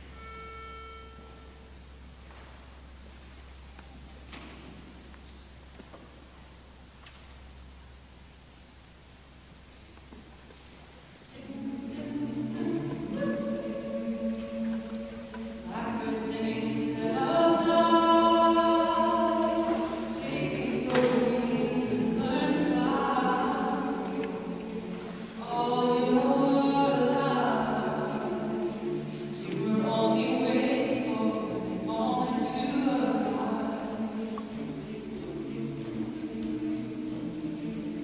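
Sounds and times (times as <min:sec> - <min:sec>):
mixed choir singing a cappella: 0:11.2 - 0:38.0.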